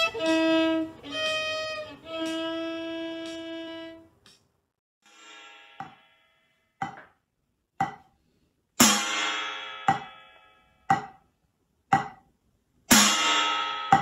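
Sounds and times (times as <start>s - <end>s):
drumstick striking ringing steel plate: 5.1s - 7.2s, 7.8s - 8.1s, 8.8s - 11.3s, 11.9s - 12.3s, 12.9s - 14.0s
drumstick taps on rubber pad: 7.8s - 8.1s.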